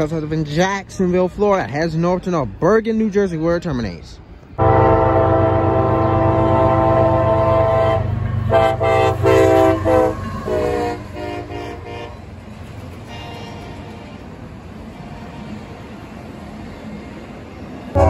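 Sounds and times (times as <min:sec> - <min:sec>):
passing train rumble: 0:00.0 - 0:18.0
locomotive air horn blasts: 0:04.6 - 0:12.2.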